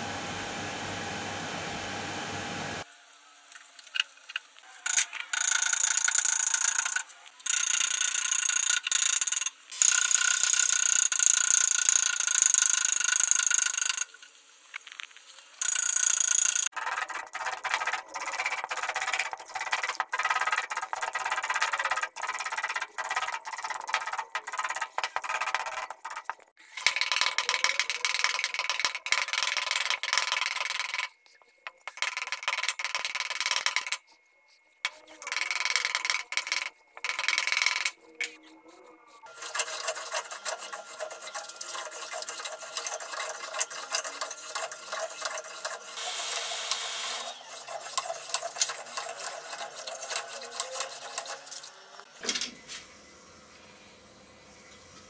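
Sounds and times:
blade scraping wood: 0:33.8 - 0:46.0, 0:47.1 - 0:51.7.

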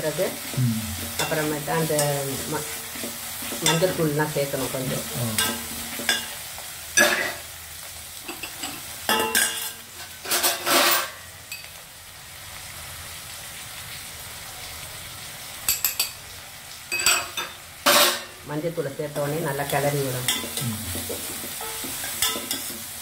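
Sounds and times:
onions sizzling in oil: 0:00.0 - 0:23.0
spoon clinking: 0:08.3 - 0:09.8, 0:16.9 - 0:17.6, 0:20.3 - 0:20.6, 0:21.6 - 0:22.7
spoon scraping a steel pot: 0:08.4 - 0:11.1.

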